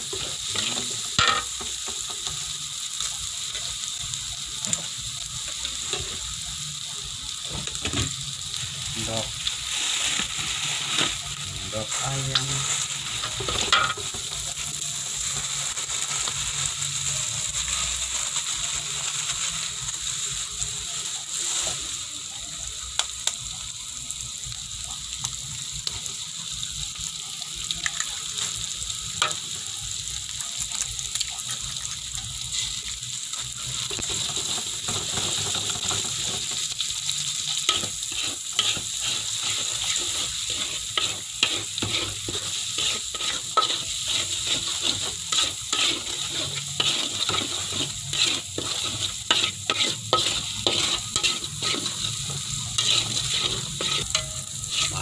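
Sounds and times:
food sizzling in hot oil: 0.0s - 55.0s
metal spatula scraping a wok: 33.7s - 55.0s.

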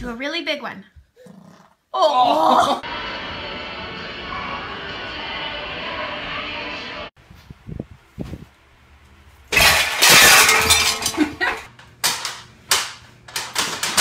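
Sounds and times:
loud crash: 9.5s - 11.2s.

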